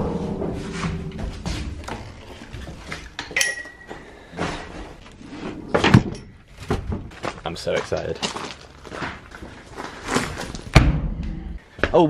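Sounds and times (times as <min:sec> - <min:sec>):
metal hardware clanking: 0:00.0 - 0:04.1.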